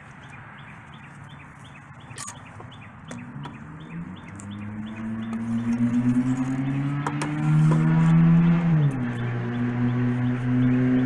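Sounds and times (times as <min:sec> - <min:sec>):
low hum rising in pitch: 0:03.2 - 0:11.0.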